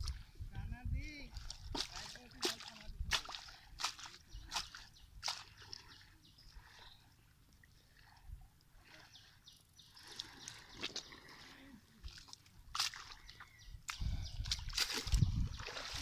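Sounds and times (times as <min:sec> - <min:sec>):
feet squelching in mud: 0:01.3 - 0:07.0, 0:09.9 - 0:16.0.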